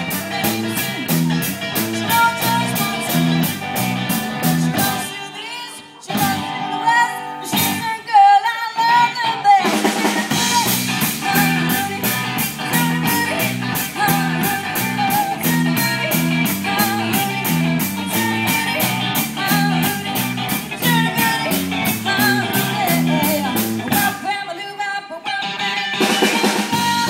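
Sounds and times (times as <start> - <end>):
bass line: 0.0 - 5.1, 9.7 - 24.2, 26.5 - 27.0
drums: 0.0 - 27.0
lead singer: 0.0 - 27.0
live rock and roll band: 0.0 - 27.0.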